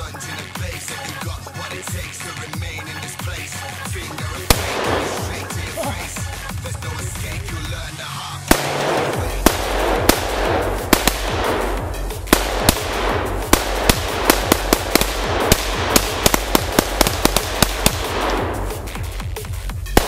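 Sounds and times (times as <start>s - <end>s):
rapid rifle shots: 4.2s - 7.7s, 8.5s - 20.0s.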